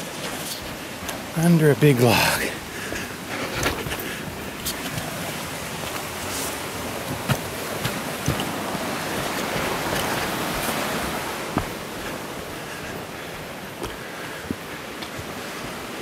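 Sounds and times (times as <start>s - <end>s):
stream rushing: 0.0s - 16.0s
short thuds: 11.5s - 12.2s.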